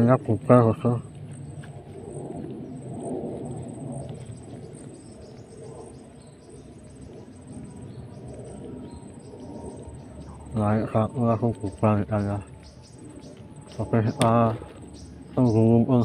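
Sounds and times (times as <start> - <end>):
high insect trill: 0.0 - 16.0
low rustling noise: 0.0 - 16.0
faint bird chirps: 3.9 - 16.0.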